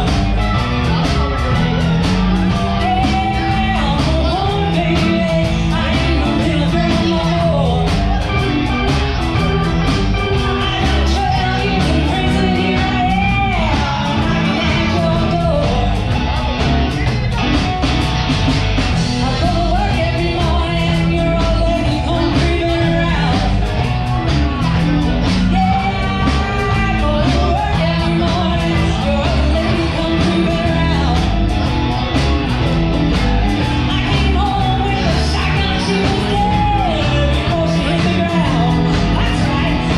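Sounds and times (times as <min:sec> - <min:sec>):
bass: 0:00.0 - 0:39.9
drums: 0:00.0 - 0:39.9
electric guitar: 0:00.0 - 0:39.9
keyboard: 0:00.0 - 0:39.9
woman singing: 0:02.4 - 0:16.2, 0:19.2 - 0:23.9, 0:25.3 - 0:31.6, 0:33.6 - 0:39.9.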